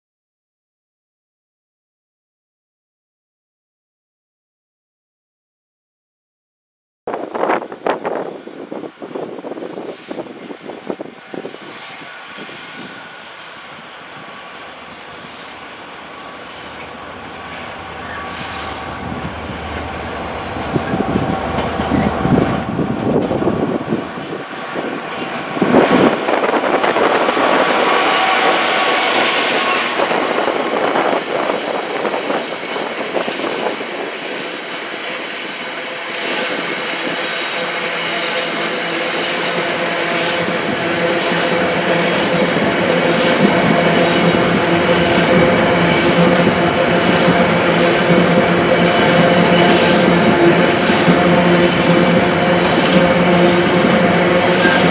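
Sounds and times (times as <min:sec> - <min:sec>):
diesel locomotive passing: 0:07.1 - 0:54.9
wheels squealing: 0:11.4 - 0:24.4.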